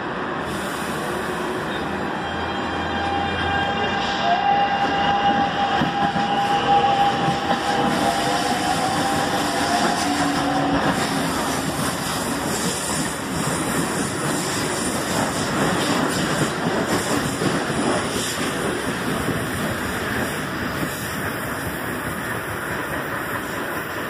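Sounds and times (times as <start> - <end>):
train wheels rumbling on rails: 0.0 - 24.0.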